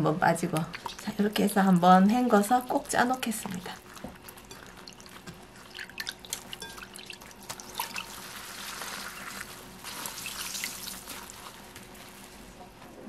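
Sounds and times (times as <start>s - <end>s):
water splashing in a bowl: 0.6s - 11.4s
water trickling and dripping: 4.8s - 8.1s.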